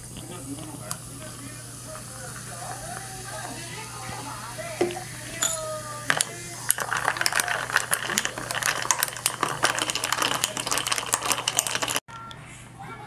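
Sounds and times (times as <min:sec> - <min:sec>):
soda fizzing: 0:00.0 - 0:12.0
straw clinking against glass: 0:04.8 - 0:12.0.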